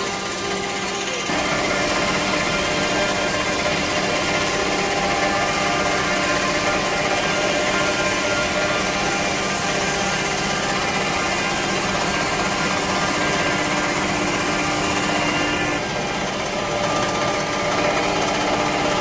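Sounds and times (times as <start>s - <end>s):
grinding machine whine: 0.0s - 19.0s.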